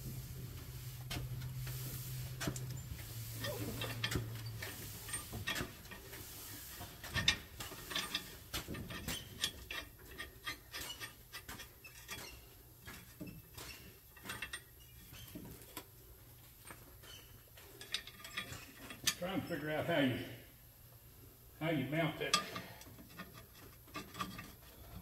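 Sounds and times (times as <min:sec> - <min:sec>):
metallic clicks of nuts and washers: 0:07.1 - 0:12.4, 0:17.8 - 0:19.2, 0:22.3 - 0:25.0.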